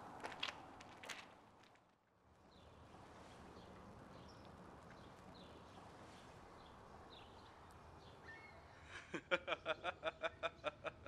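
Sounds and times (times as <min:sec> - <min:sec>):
faint outdoor air: 0:00.0 - 0:11.0
young man laughing: 0:08.9 - 0:11.0.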